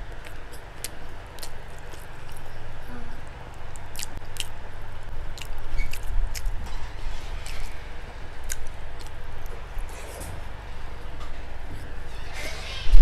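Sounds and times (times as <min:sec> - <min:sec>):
person chewing food: 0:00.0 - 0:11.0
wet mouth clicks and lip smacks: 0:03.7 - 0:04.6, 0:05.3 - 0:06.6, 0:08.4 - 0:09.5.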